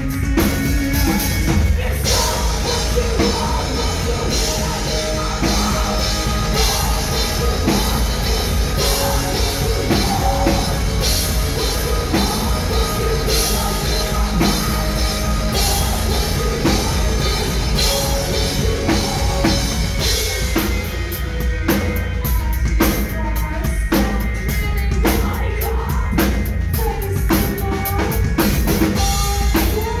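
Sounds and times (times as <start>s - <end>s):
live metal band: 0.0s - 30.0s
person singing: 0.0s - 30.0s.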